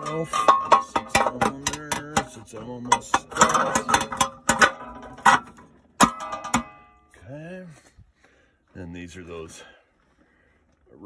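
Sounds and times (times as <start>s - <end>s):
ringing metal knock: 0.0s - 7.0s
metal clanking and clicking: 0.0s - 7.1s.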